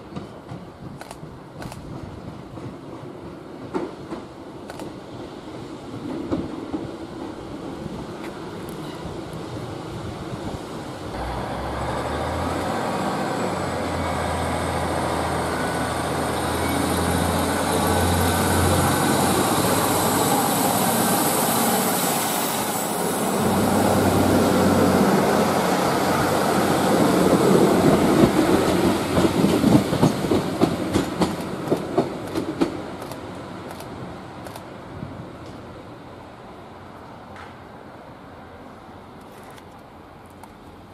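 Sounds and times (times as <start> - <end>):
train wheels clicking over rail joints: 0.0 - 5.0, 27.2 - 33.9
diesel train engine drone: 7.5 - 39.2.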